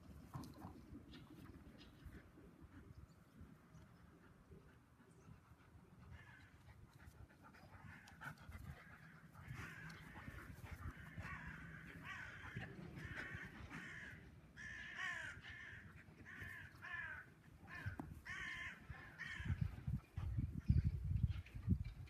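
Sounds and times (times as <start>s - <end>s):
crows cawing: 9.4s - 19.6s.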